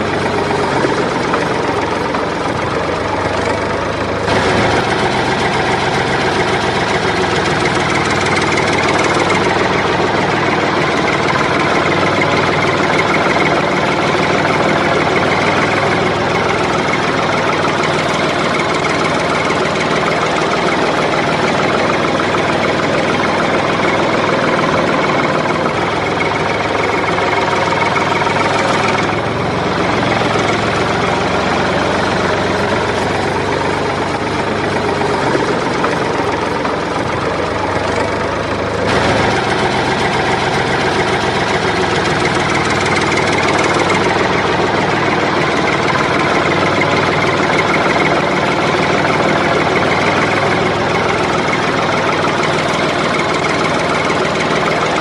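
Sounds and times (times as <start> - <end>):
engine running steadily: 0.0 - 55.0.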